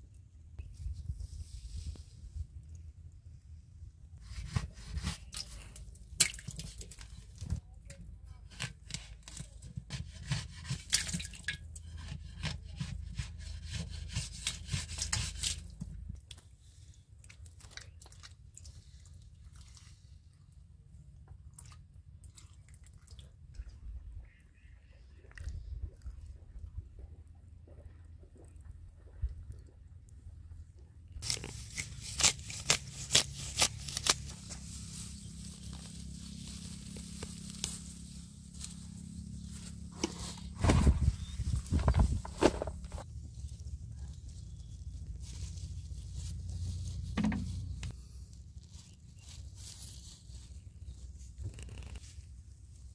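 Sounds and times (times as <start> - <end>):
metal blade scraping clay soil: 11.8 - 15.7, 31.2 - 38.0
low steady hum: 23.2 - 51.4
grass roots snapping: 31.2 - 40.8
soil clods crumbling: 31.2 - 48.0.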